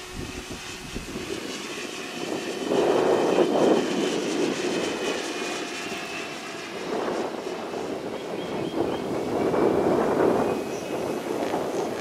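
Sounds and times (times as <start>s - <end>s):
model helicopter rotor whirring: 0.0s - 12.0s.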